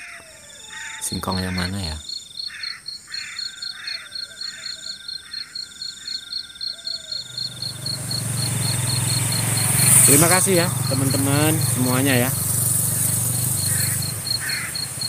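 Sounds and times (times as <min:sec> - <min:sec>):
crickets trilling: 0:00.0 - 0:15.0
rushing noise with low hum: 0:07.6 - 0:15.0.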